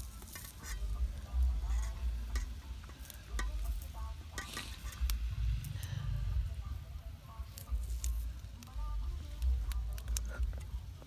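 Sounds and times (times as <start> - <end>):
wind rumble on microphone: 4.8 - 8.4.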